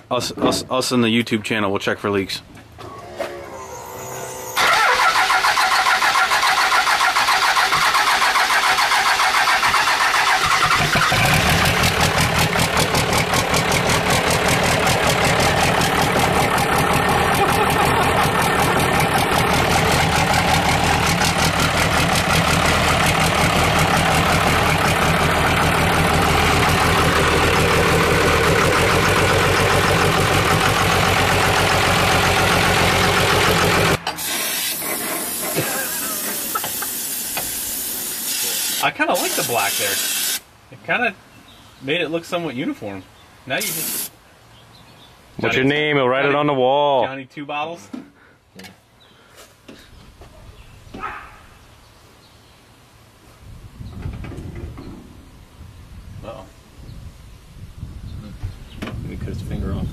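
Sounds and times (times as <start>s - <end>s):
diesel engine starting and running: 2.6s - 39.7s.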